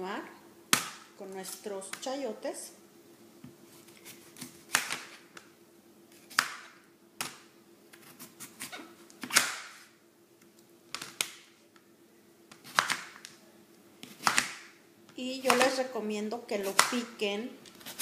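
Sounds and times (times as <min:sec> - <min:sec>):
knife cutting vegetable: 0:17.8 - 0:18.0.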